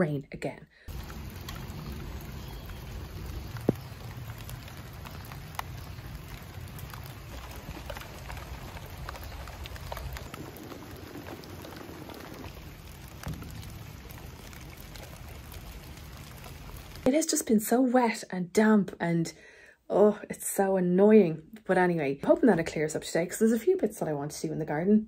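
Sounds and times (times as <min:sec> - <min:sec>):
rain drops pattering: 0:00.9 - 0:17.4.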